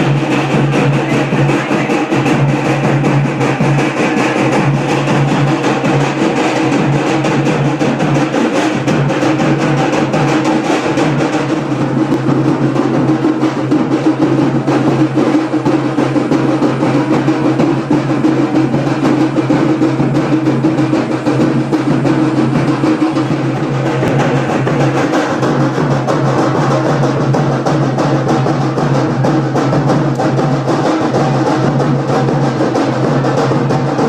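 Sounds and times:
fast drum roll: 0:00.0 - 0:34.0.

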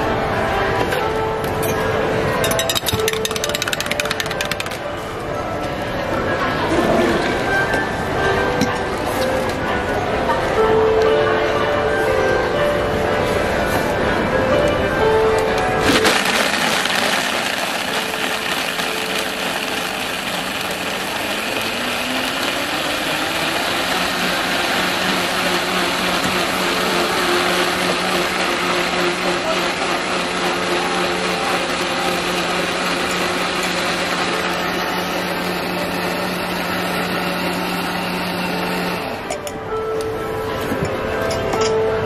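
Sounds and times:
blender running: 0:02.6 - 0:04.8, 0:15.8 - 0:39.2.

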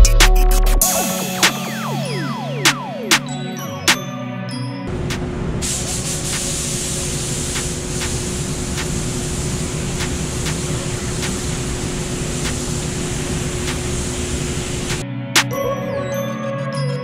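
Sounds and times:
ventilation fans humming: 0:04.9 - 0:15.0
spray gun hissing: 0:05.6 - 0:15.0.

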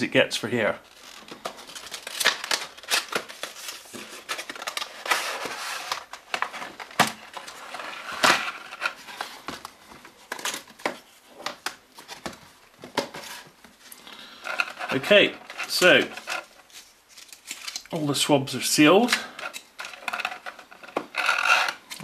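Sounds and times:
cardboard rustling: 0:00.9 - 0:17.8.

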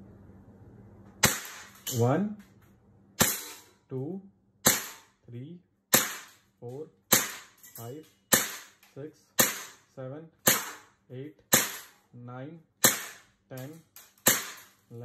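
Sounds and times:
air pistol shots: 0:01.2 - 0:02.0, 0:03.2 - 0:03.7, 0:04.6 - 0:05.1, 0:05.9 - 0:06.4, 0:07.1 - 0:07.6, 0:08.3 - 0:08.8, 0:09.4 - 0:09.8, 0:10.4 - 0:10.9, 0:11.5 - 0:12.0, 0:12.8 - 0:13.3, 0:14.1 - 0:14.8.

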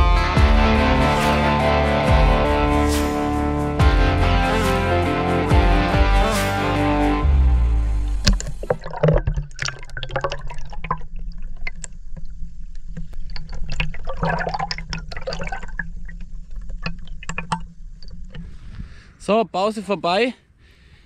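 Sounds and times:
water splashing and dripping: 0:08.1 - 0:18.6.

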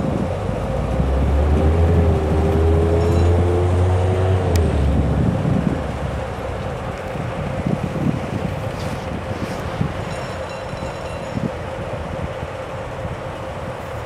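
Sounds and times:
diesel locomotive engines rumbling: 0:00.0 - 0:14.0.

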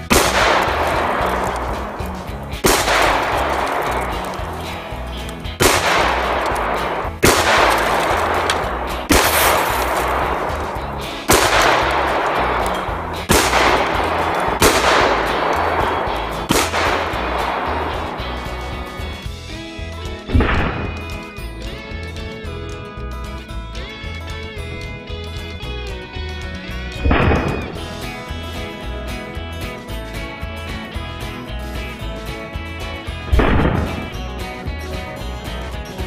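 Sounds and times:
shotgun shots echoing: 0:00.0 - 0:19.1, 0:20.3 - 0:21.0, 0:27.0 - 0:27.8, 0:33.3 - 0:34.2.

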